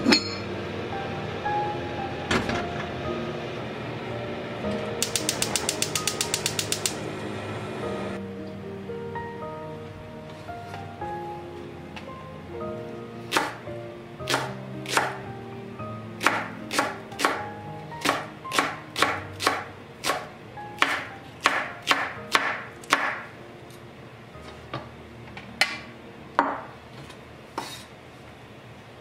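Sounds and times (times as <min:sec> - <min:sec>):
knife chopping on wooden board: 0:13.3 - 0:13.6, 0:14.3 - 0:15.2, 0:16.2 - 0:17.4, 0:18.0 - 0:23.2.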